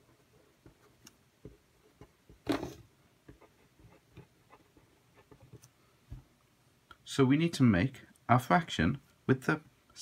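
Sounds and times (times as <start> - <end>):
marker scratching on paper: 3.3 - 5.6.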